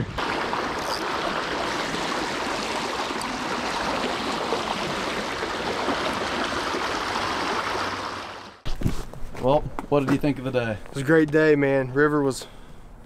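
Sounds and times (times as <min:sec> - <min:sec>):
river water rushing: 0:00.2 - 0:08.6.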